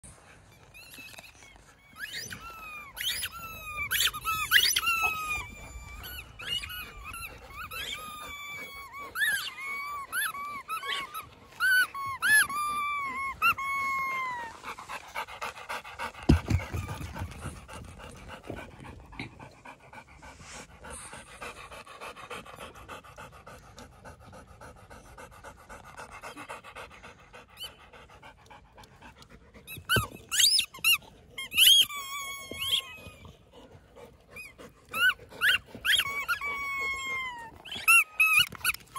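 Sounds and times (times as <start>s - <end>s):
dog panting: 1.7s - 38.9s
squeaky dog toy squeaking: 1.8s - 14.4s, 29.7s - 33.2s, 34.4s - 38.8s.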